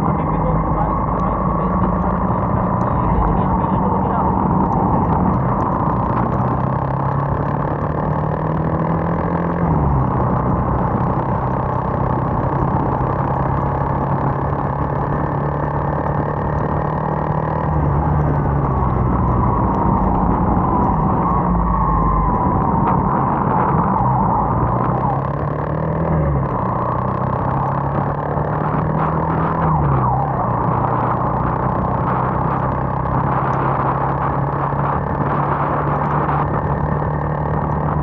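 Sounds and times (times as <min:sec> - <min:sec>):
motorcycle engine running: 0:00.0 - 0:38.0
wet road noise: 0:00.0 - 0:38.0
wind rushing: 0:17.9 - 0:37.2.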